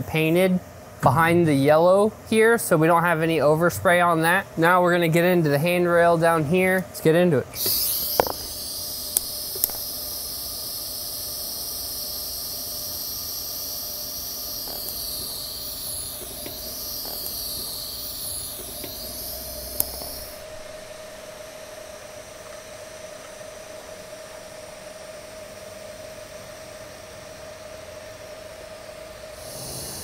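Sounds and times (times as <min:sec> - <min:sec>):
quiet steady hum: 0:00.0 - 0:26.5
welding arc hissing: 0:07.5 - 0:24.9, 0:29.3 - 0:30.0
sharp click: 0:07.6 - 0:09.9, 0:14.6 - 0:20.4.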